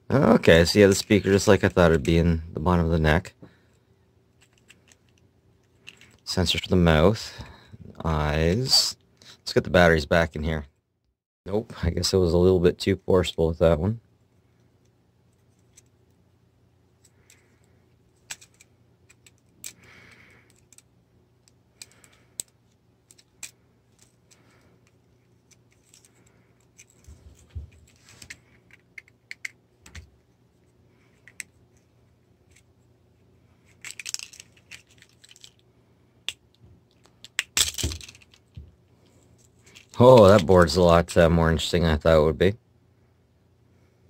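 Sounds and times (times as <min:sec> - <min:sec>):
plastic toy clicking and snapping: 0:33.8 - 0:35.6.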